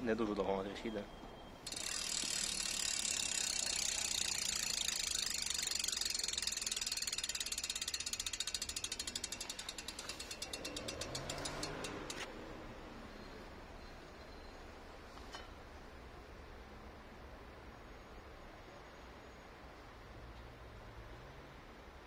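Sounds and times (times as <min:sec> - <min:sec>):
bicycle hub ratcheting clicks: 0:01.6 - 0:12.3.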